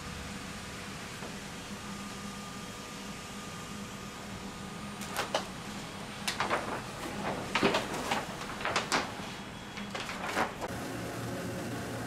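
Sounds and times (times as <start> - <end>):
steady low hum: 0.0 - 12.0
laminating film crackling: 5.0 - 10.7.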